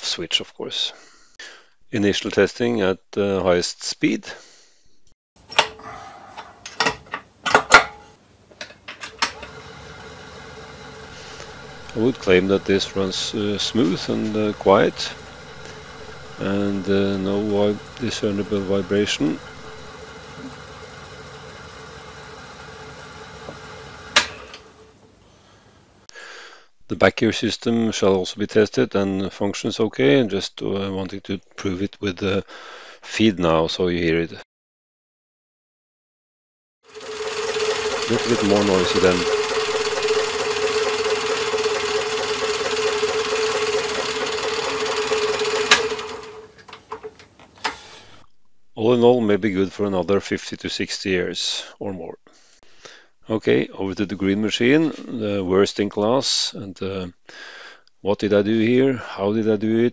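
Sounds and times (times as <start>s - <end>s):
lathe motor humming: 9.0s - 25.2s, 36.9s - 47.9s
lathe switch click: 23.4s - 24.7s.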